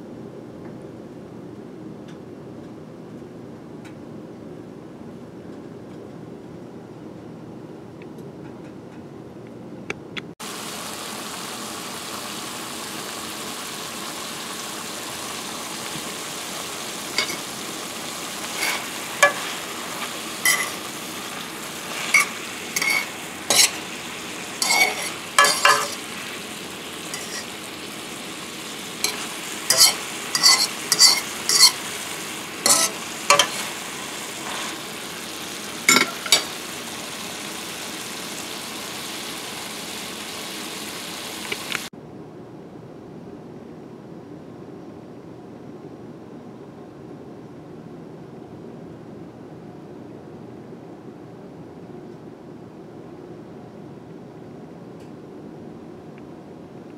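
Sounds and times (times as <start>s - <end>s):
fish sizzling in a skillet: 10.4s - 41.9s
utensil scraping a pan: 17.1s - 17.5s, 18.4s - 26.4s, 27.1s - 27.6s, 29.0s - 34.9s.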